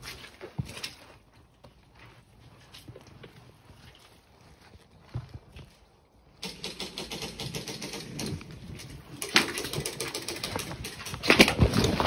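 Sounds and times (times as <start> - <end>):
rapid sharp clicks: 6.4 - 8.6, 9.2 - 11.6.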